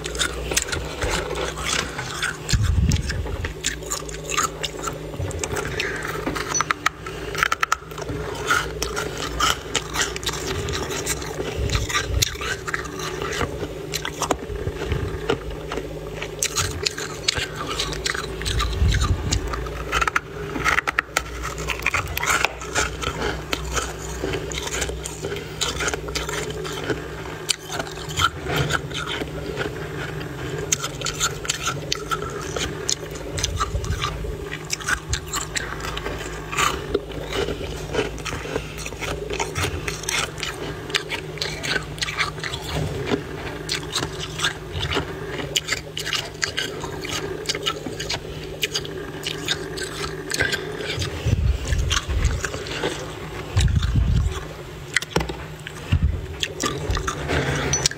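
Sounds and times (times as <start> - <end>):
frost crunching and scraping: 0.0 - 57.9
steady low hum: 0.0 - 57.9.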